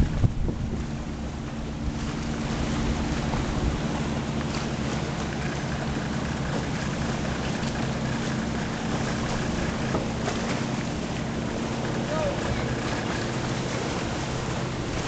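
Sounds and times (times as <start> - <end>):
wind on microphone: 0.0 - 4.1
motorboat engine running: 0.0 - 15.0.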